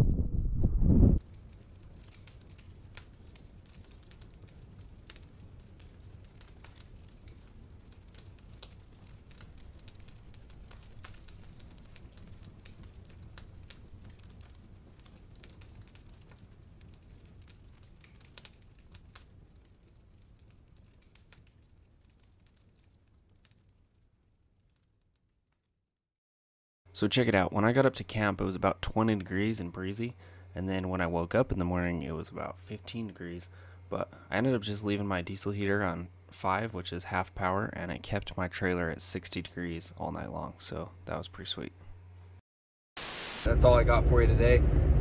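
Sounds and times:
campfire crackling and popping: 1.2s - 25.3s
low steady rumble: 43.5s - 45.0s.

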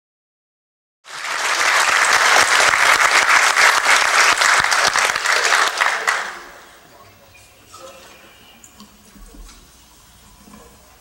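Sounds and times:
audience applauding: 1.0s - 6.8s.

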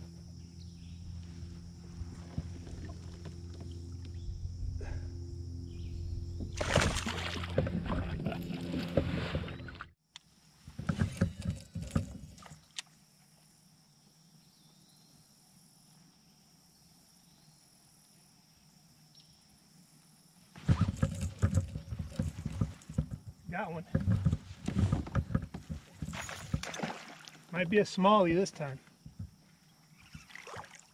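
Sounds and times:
low steady hum: 0.0s - 10.0s
knocks and rattles on plastic kayak: 2.1s - 3.8s, 6.4s - 9.8s, 10.7s - 12.7s, 20.6s - 27.1s, 29.0s - 29.4s.

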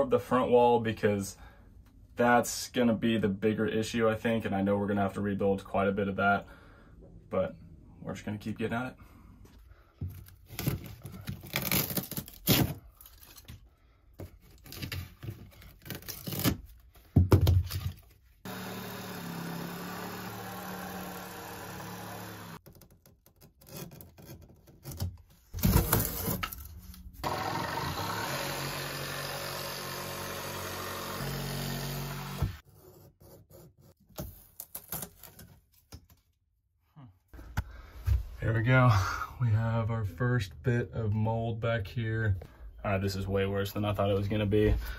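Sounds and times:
plywood being pried and torn: 10.0s - 13.6s, 14.2s - 16.8s, 17.4s - 32.6s
reciprocating saw cutting: 18.5s - 22.6s, 27.2s - 32.6s.

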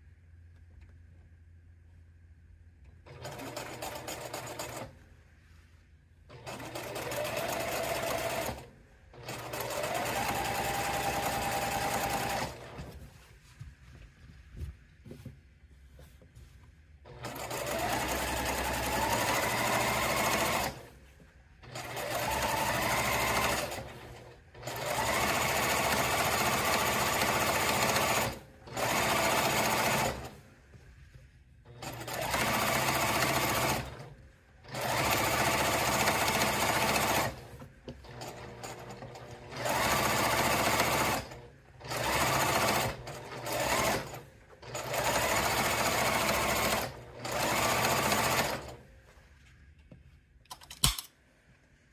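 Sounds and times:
sewing machine stitching: 3.0s - 5.0s, 6.3s - 13.0s, 17.0s - 20.9s, 21.6s - 30.4s, 31.6s - 48.8s.

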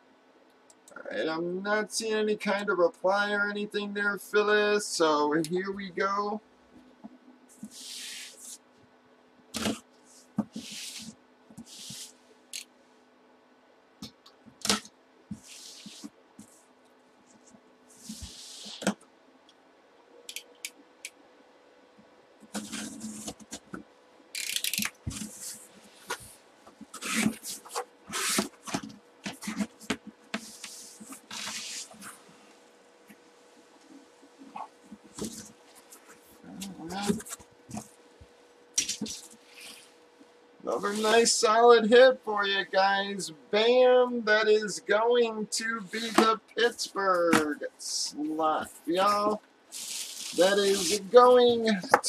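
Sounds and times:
box cutter slicing tape: 27.0s - 28.8s.

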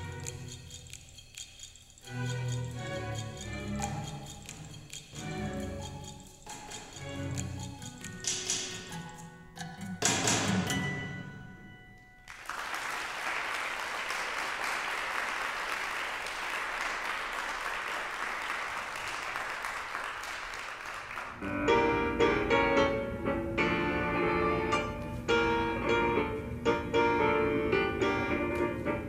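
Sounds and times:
piano music: 2.1s - 12.4s, 21.4s - 29.0s
audience applauding: 12.3s - 21.4s.

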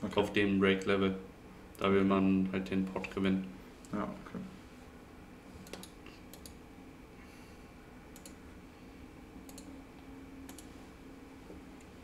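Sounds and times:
faint room hum: 0.0s - 12.0s
computer mouse clicks: 5.6s - 6.6s, 8.1s - 8.4s, 9.4s - 9.8s, 10.4s - 10.7s.

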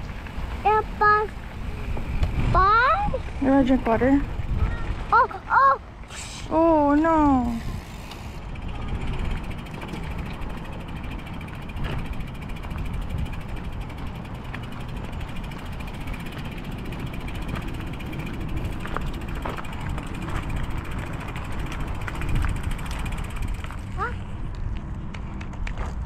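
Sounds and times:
low rumble: 6.5s - 26.0s
bike freehub ticking: 7.1s - 24.1s.

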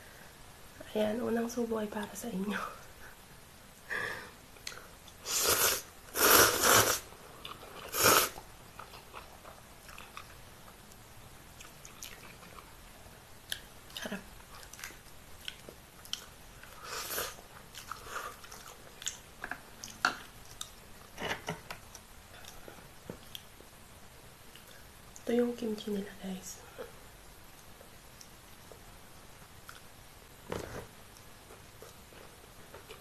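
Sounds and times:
noodles slurping: 5.2s - 7.1s, 7.8s - 8.4s
wet chewing: 11.6s - 12.7s, 14.6s - 16.7s.

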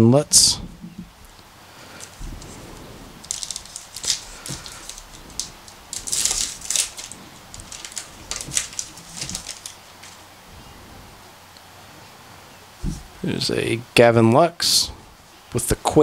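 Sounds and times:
card wrapper crinkling: 3.2s - 10.2s.

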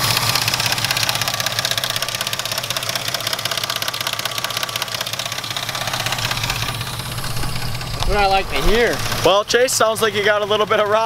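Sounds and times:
engine idling with rapid knocking: 0.0s - 11.0s.

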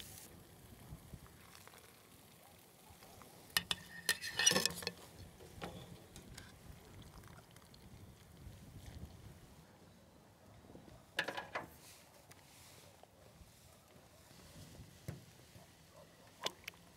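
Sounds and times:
wire skimmer clinking on cookware: 3.6s - 6.5s.

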